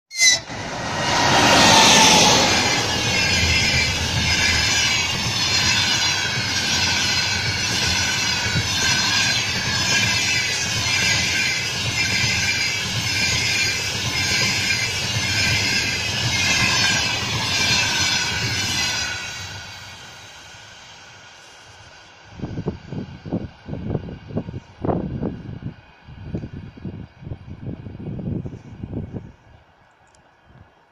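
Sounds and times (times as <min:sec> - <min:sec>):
locomotive rushing past: 0:00.1 - 0:24.5
train wheels rolling over rails: 0:00.4 - 0:25.5.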